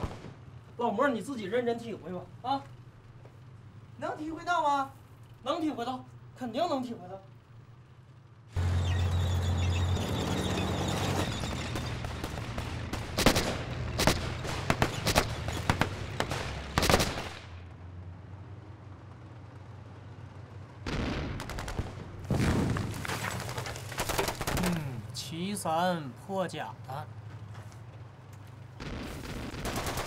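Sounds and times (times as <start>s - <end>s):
gunshots and bursts: 0.0s - 0.6s, 11.3s - 17.6s, 20.8s - 22.8s, 23.9s - 24.8s, 28.8s - 30.0s
low tank rumble: 7.2s - 30.0s.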